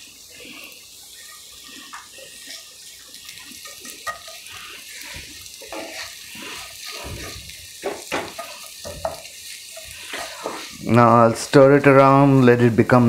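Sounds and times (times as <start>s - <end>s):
onions sizzling in oil: 0.0s - 13.0s
spatula stirring: 0.2s - 12.5s
spatula knocking on pan: 7.8s - 9.3s.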